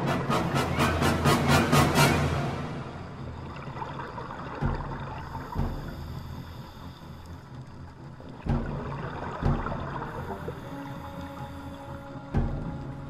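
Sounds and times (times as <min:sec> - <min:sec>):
muffled underwater water noise: 0:00.0 - 0:13.0
low thumps: 0:08.4 - 0:10.6.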